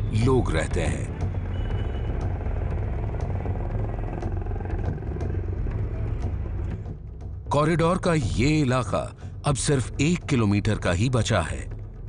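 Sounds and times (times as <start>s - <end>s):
steady engine hum: 0.7s - 7.4s.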